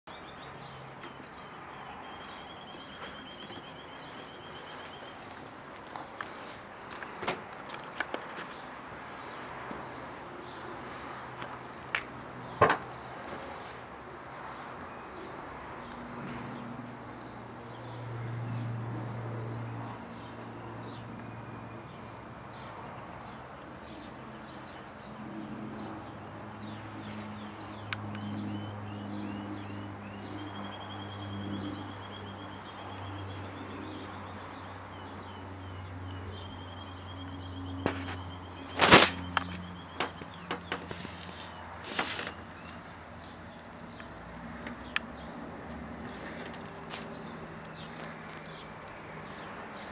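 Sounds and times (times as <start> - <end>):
birds chirping and trilling: 0.1 - 13.8, 21.9 - 45.4.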